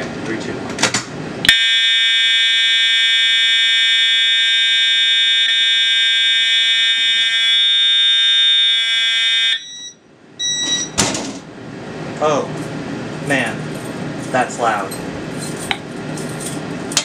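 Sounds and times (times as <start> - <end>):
fire alarm horns: 1.5 - 11.0.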